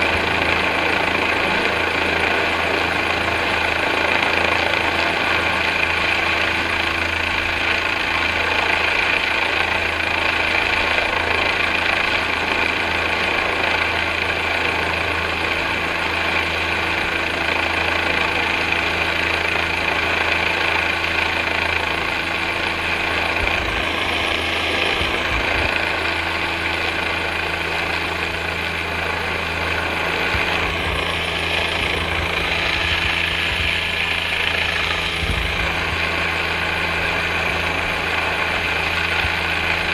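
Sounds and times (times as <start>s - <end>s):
helicopter hovering: 0.0s - 39.9s
wind rumbling on microphone: 22.0s - 39.9s.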